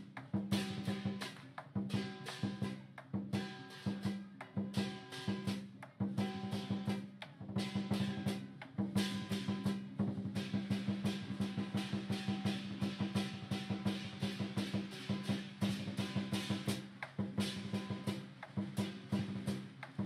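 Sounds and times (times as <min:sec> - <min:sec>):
big drum beaten fast: 0:04.8 - 0:20.0
clashing cymbals: 0:09.0 - 0:20.0.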